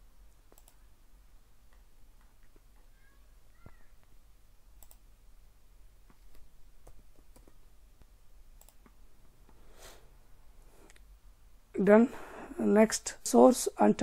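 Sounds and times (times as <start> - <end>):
mouse clicks: 0.5 - 0.8, 4.8 - 5.0, 6.1 - 9.0
keyboard keystrokes: 6.1 - 7.6.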